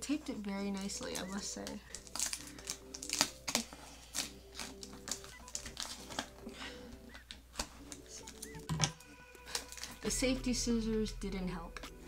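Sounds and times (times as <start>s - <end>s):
scissors scraping packing tape: 0.8s - 6.3s.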